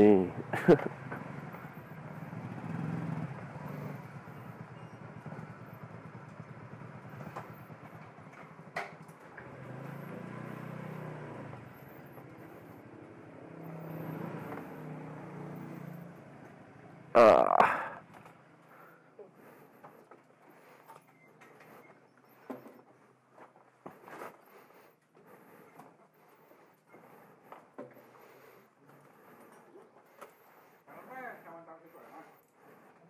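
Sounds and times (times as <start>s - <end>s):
motorcycle engines at low revs: 0.0s - 33.0s.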